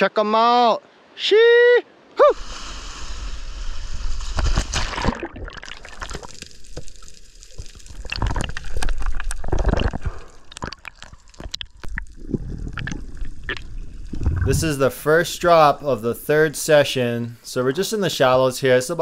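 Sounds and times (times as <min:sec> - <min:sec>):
surge of water movement: 0:02.4 - 0:15.8
underwater gurgling and rushing: 0:02.4 - 0:16.3
sharp underwater clicks: 0:04.4 - 0:14.5.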